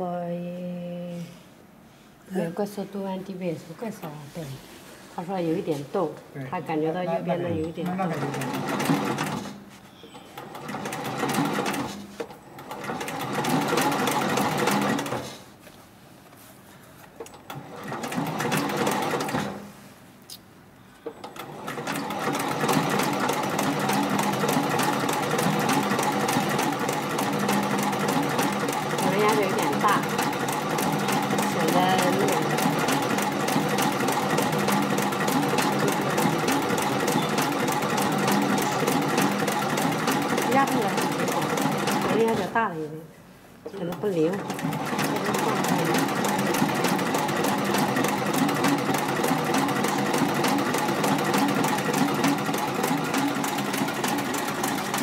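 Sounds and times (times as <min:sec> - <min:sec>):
sewing machine stitching leather: 0:07.9 - 0:09.6, 0:10.4 - 0:15.4, 0:17.4 - 0:19.6, 0:21.2 - 0:42.6, 0:44.3 - 0:55.0.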